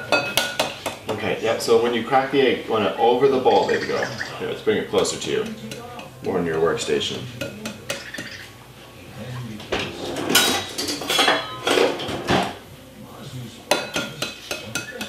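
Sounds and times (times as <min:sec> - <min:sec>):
kitchenware clinking: 0:00.0 - 0:01.2, 0:03.4 - 0:08.6, 0:09.6 - 0:12.6, 0:13.7 - 0:15.0
eggs tapped on glass bowl: 0:07.4 - 0:08.5.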